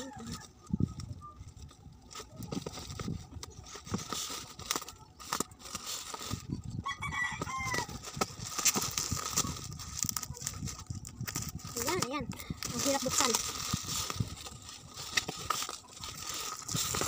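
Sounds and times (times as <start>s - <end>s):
plastic wrapping crinkling: 0.0s - 17.0s
rooster crowing: 6.8s - 8.0s.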